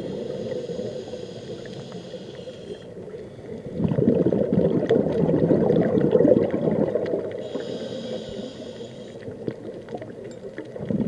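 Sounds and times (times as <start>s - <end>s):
regulator inhale hiss: 0.0s - 3.8s, 7.3s - 9.3s
exhaled bubbles gurgling: 0.0s - 11.0s.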